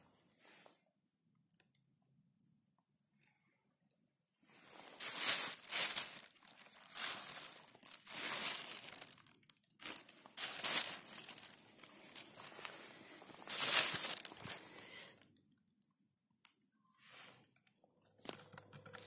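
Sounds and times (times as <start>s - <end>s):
plastic bag crinkling: 4.5s - 15.3s, 18.0s - 19.0s.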